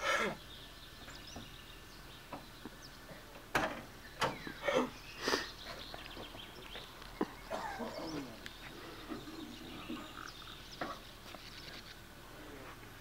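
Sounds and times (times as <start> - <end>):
faint bird chirps: 4.0 - 12.0.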